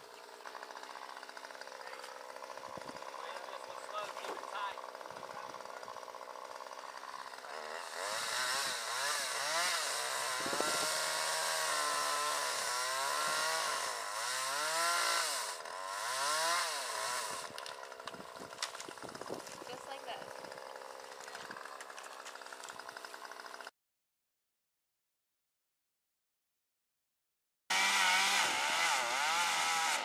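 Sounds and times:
chainsaw cutting wood: 0.0s - 23.7s, 27.7s - 30.0s.

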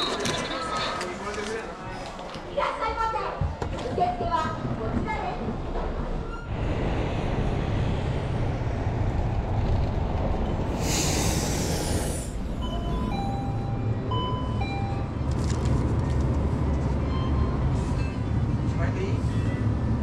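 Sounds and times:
bus passing rumble: 4.5s - 20.0s
air brakes hissing: 10.7s - 12.4s
beeping tune: 12.6s - 15.2s.

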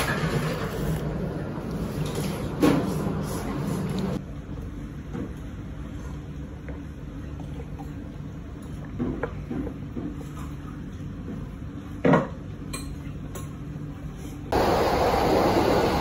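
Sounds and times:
steady low hum: 13.1s - 16.0s.

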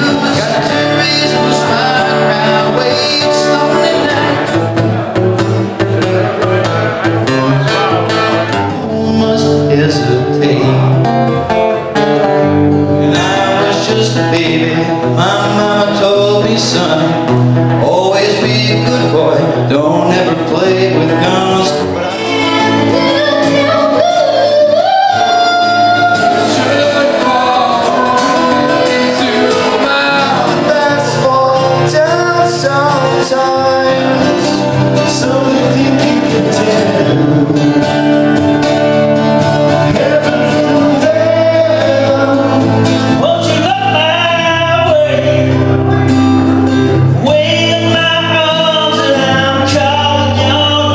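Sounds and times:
man singing: 0.0s - 11.6s, 12.2s - 50.9s
acoustic guitar strumming: 0.0s - 50.9s.

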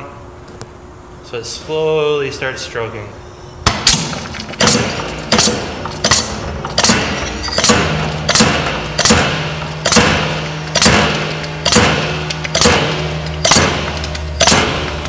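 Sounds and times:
pump knocking: 3.7s - 15.0s.

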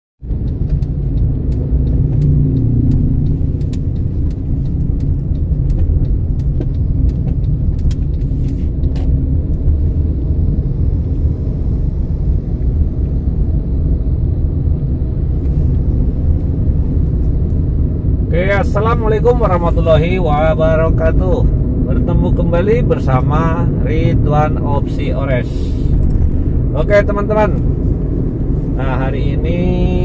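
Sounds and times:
sharp clicks and ticks: 0.2s - 11.3s, 18.4s - 30.0s
car engine and road rumble: 0.2s - 30.0s.

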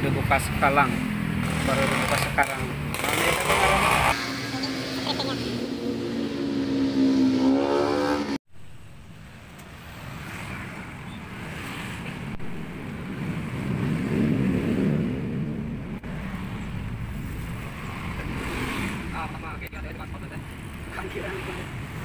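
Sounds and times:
traffic noise: 0.0s - 22.0s
passing vehicle engine: 0.1s - 8.4s, 13.0s - 22.0s.

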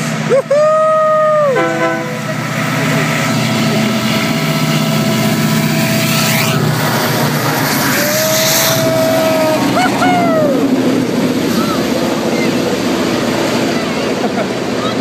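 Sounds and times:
diesel locomotives passing: 0.0s - 15.0s
long high note: 1.2s - 2.9s.

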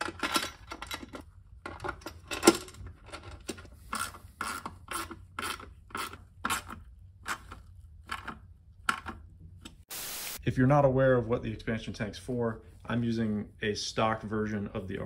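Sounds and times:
hand ratchet rasping: 3.5s - 9.2s.

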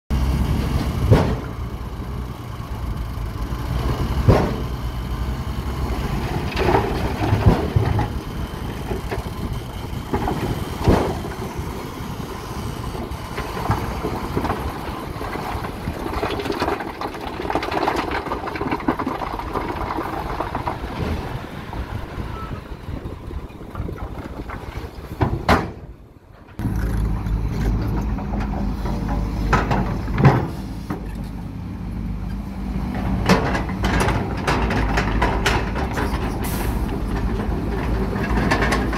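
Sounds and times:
machine engine: 0.1s - 25.2s, 26.3s - 31.2s
truck diesel engine running: 0.1s - 38.9s
sharp knocks: 4.2s - 4.7s
rock clattering out of truck bed: 13.4s - 21.5s.

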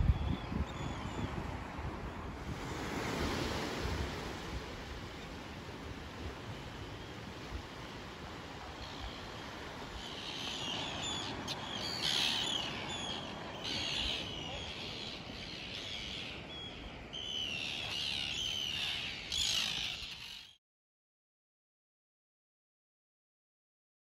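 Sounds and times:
wind and sea hiss: 0.0s - 20.4s
seabirds calling: 6.4s - 20.6s.

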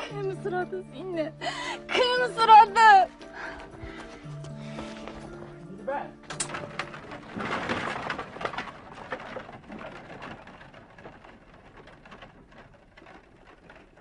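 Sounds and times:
cart rolling through grass: 4.6s - 14.0s
clicks and knocks: 6.2s - 14.0s.

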